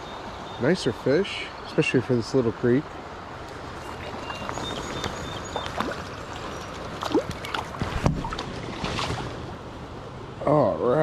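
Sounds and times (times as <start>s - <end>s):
creek running over riffles: 0.2s - 10.9s
fish splashing in water: 3.8s - 9.5s.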